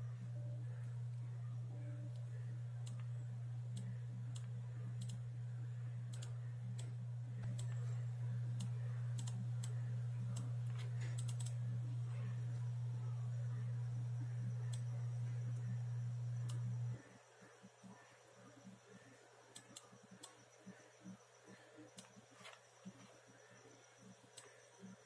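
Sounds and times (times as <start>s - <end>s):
steady low hum: 0.0s - 25.0s
keyboard and mouse clicks: 8.6s - 9.7s, 10.3s - 11.6s.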